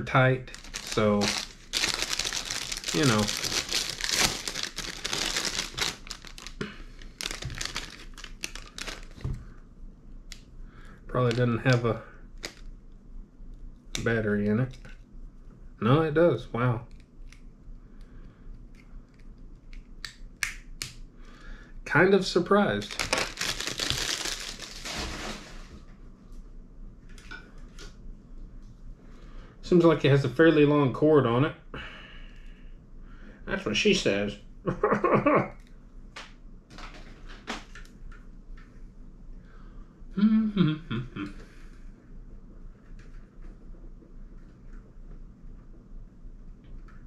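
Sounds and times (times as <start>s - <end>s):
packaging crinkling: 0.5s - 9.4s, 12.4s - 12.7s, 22.8s - 25.6s.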